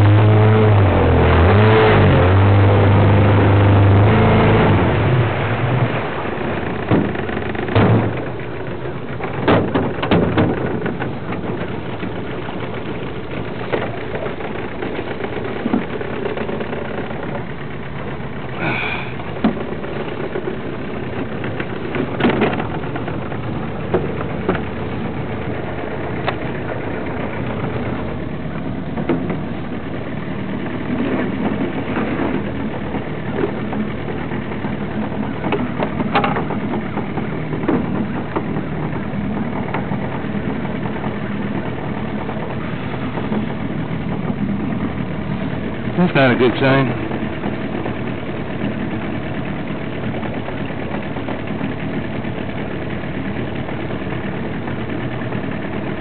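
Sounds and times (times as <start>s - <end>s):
small boat motor running: 0.0s - 56.0s
sharp knocks: 6.8s - 8.4s, 9.2s - 11.7s.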